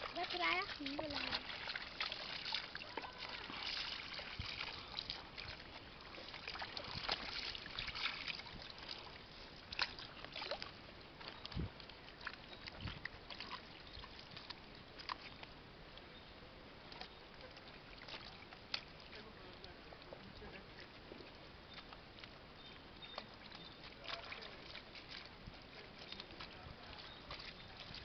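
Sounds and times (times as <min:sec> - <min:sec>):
water sloshing in basins: 0:00.0 - 0:15.5, 0:16.9 - 0:28.0
small splashes and drips: 0:00.0 - 0:16.1, 0:16.8 - 0:28.0.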